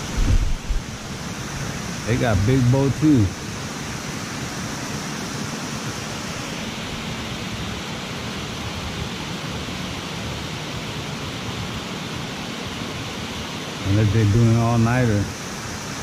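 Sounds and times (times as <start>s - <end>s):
water rushing through dam gates: 0.0s - 16.0s.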